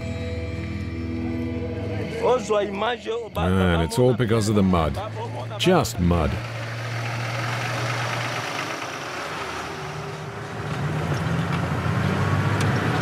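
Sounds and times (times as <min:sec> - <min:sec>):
truck engine running: 0:04.0 - 0:13.0.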